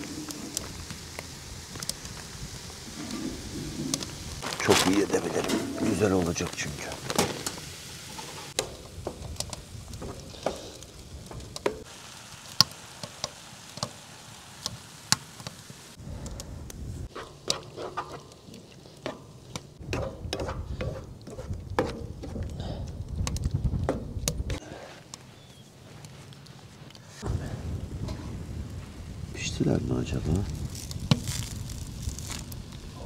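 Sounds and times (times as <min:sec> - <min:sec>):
vegetables sizzling in a pan: 0:00.0 - 0:16.0, 0:27.9 - 0:33.0
spatula tapping and scraping pan: 0:19.0 - 0:22.5.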